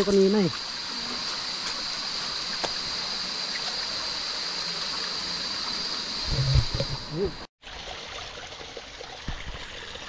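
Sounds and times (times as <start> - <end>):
stream trickling over rocks: 0.0 - 10.0.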